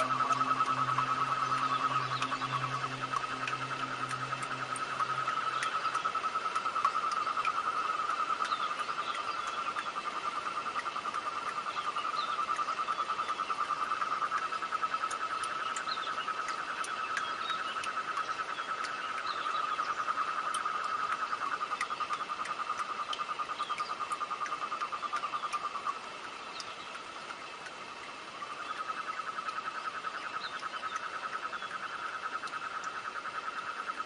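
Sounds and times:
low hum: 0:00.0 - 0:30.4.

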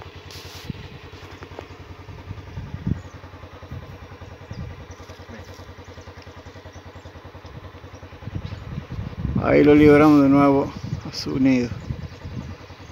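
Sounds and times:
engine idling: 0:00.0 - 0:12.9.

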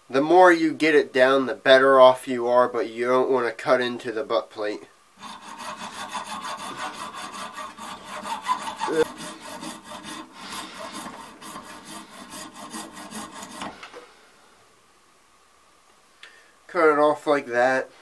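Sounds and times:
hacksaw sawing brass: 0:05.2 - 0:13.8.

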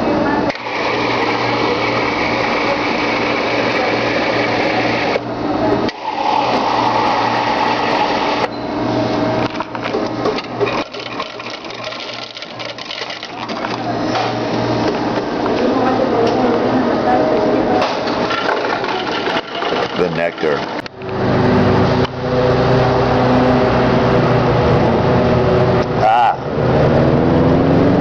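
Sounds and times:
drink dispenser humming: 0:00.1 - 0:22.2
busy clatter: 0:09.5 - 0:14.3, 0:17.7 - 0:20.9.

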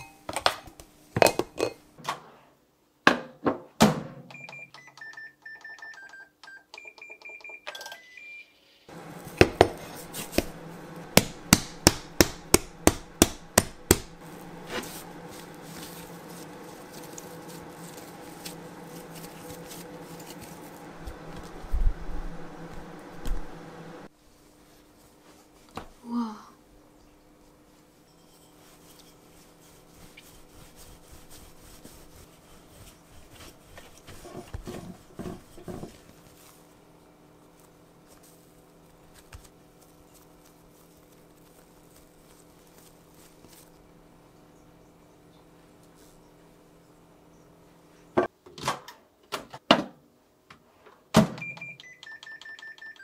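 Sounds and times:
microwave keypad beeps: 0:04.3 - 0:08.5, 0:51.4 - 0:53.0
microwave oven humming: 0:08.9 - 0:24.2, 0:33.7 - 0:48.2
dough slaps: 0:09.3 - 0:14.9
dough thumping on board: 0:09.4 - 0:10.6, 0:11.2 - 0:14.2.

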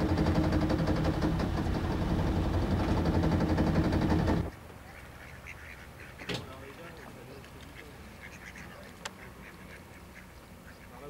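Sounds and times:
boat engine running: 0:00.0 - 0:04.5
faint duck calls: 0:04.5 - 0:11.0.

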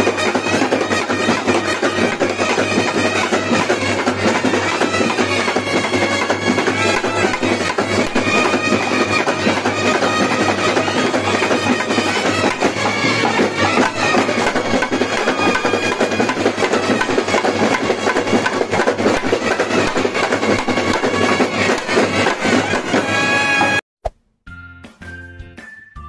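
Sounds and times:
trumpets playing a melody: 0:00.0 - 0:17.7
barrel drum beating: 0:00.0 - 0:23.2
snare drums beating: 0:00.0 - 0:23.8.

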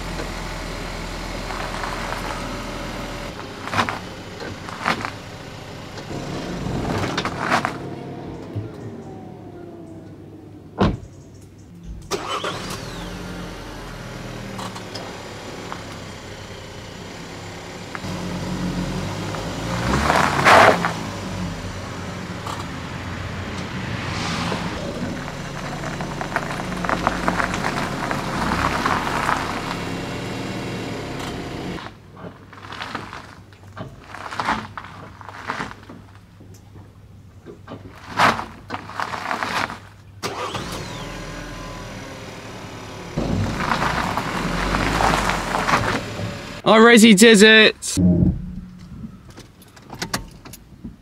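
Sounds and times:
car engine running: 0:00.0 - 0:31.9, 0:40.3 - 0:50.4
tyres on gravel: 0:00.0 - 0:41.2, 0:42.8 - 0:47.7
car door shutting: 0:10.8 - 0:11.2.

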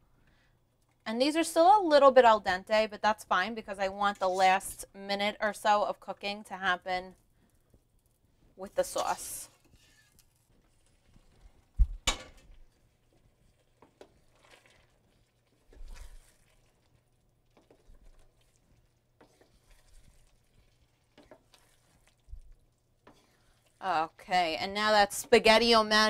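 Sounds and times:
wooden spoon stirring pasta in pan: 0:07.2 - 0:11.8, 0:12.5 - 0:26.0.

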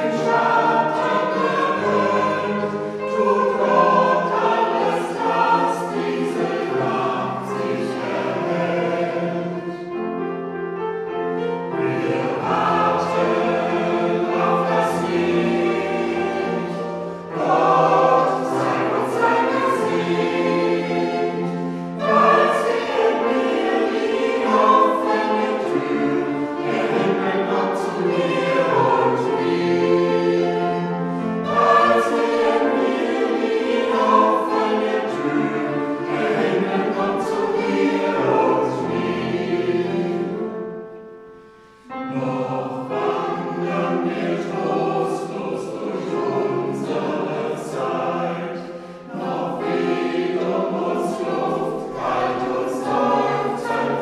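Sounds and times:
church choir singing: 0:00.0 - 0:54.0.

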